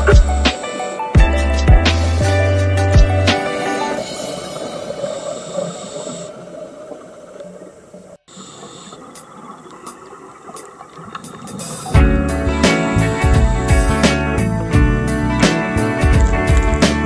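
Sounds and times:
background music: 0.0 - 5.1, 9.9 - 17.0
diver breathing through regulator: 4.0 - 6.6, 8.3 - 9.3, 11.2 - 12.0.

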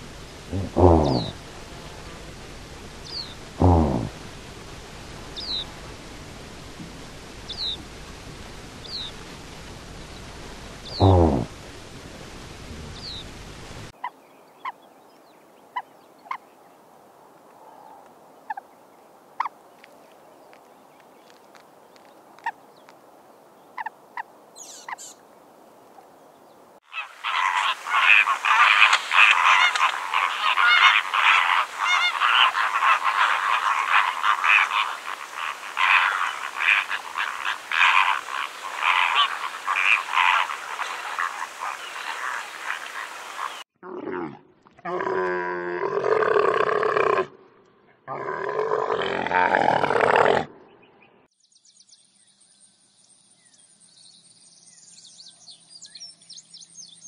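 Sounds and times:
flamingos honking: 0.0 - 2.3, 26.9 - 43.6.

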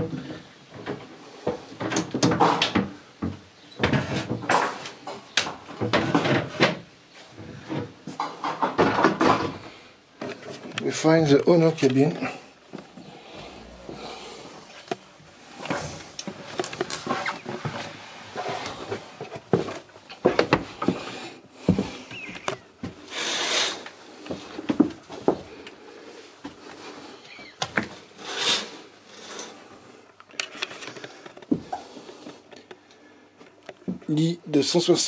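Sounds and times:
rustling: 10.2 - 33.3.

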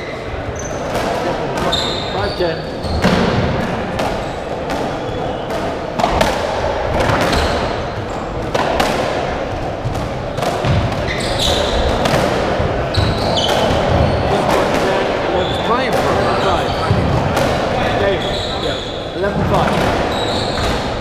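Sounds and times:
ball cracking off racquet and walls: 2.9 - 15.0.

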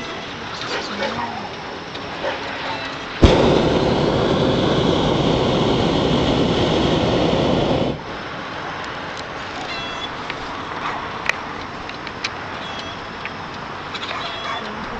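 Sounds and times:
propane burner roaring: 3.0 - 13.9.

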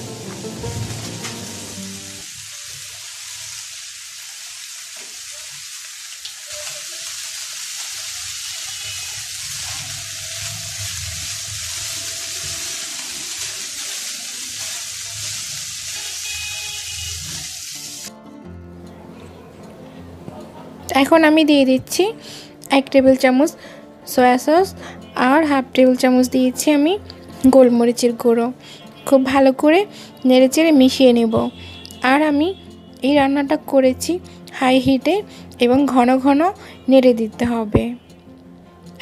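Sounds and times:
food sizzling in a frying pan: 0.0 - 18.1.

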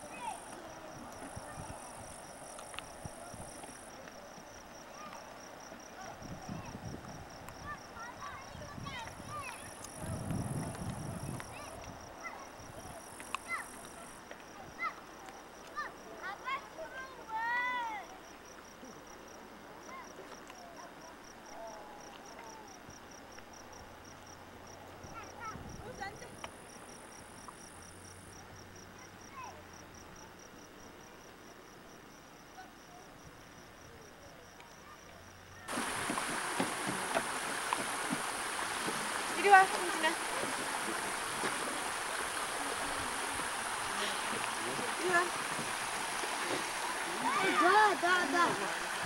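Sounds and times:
faint voices: 0.0 - 18.3, 39.0 - 49.0
cricket chirping: 0.0 - 49.0
faint outdoor background: 0.0 - 49.0
insect buzzing: 35.7 - 49.0.

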